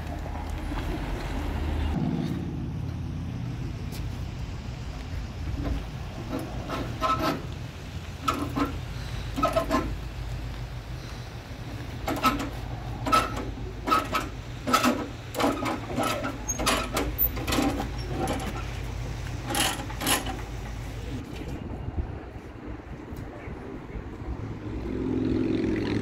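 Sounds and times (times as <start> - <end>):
steel chain clanking: 12.0 - 20.8.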